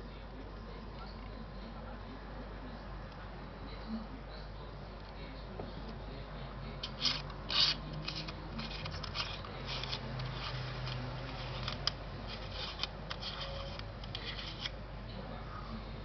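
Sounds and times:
scratchy rubbing of camera handling: 0:06.8 - 0:14.8.

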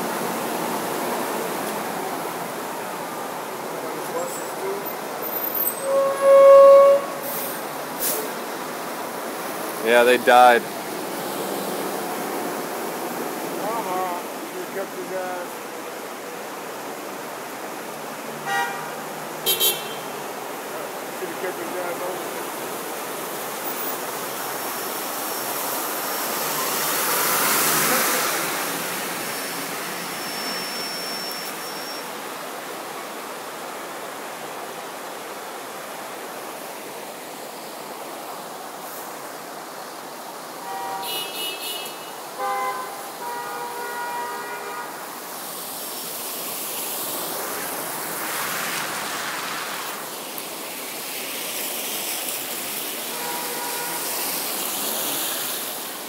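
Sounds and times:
tyres splashing through water: 0:00.0 - 0:36.7, 0:41.0 - 0:56.0
vehicle horns honking: 0:05.6 - 0:07.6, 0:18.4 - 0:20.2, 0:40.6 - 0:45.0, 0:53.1 - 0:54.2.

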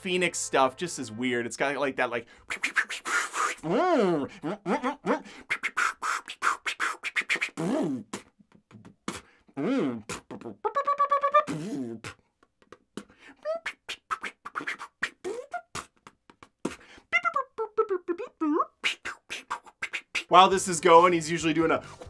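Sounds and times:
mouth clicks and pops: 0:02.4 - 0:20.3
man beatboxing: 0:02.4 - 0:21.4
swooping vocal glides: 0:02.5 - 0:12.2
pulsing held vocal tone: 0:03.5 - 0:05.2.

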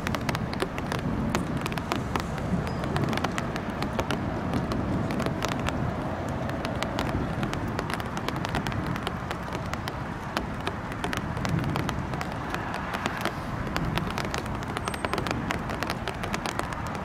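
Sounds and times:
low city rumble: 0:00.0 - 0:17.0
sharp irregular ticks: 0:00.0 - 0:17.0.

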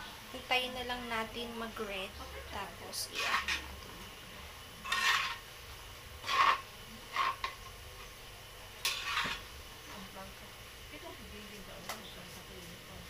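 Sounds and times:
metal spatula scraping a wok: 0:03.0 - 0:03.8, 0:04.8 - 0:05.5, 0:06.2 - 0:07.6, 0:08.8 - 0:09.5.

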